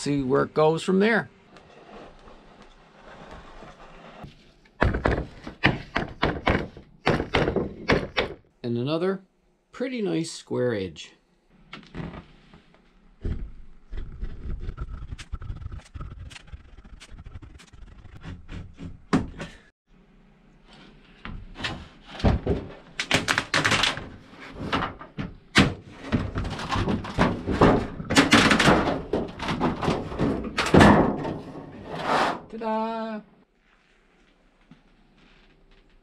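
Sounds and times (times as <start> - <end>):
aluminium sheet crackling and rattling: 14.5 - 18.2, 21.6 - 31.9.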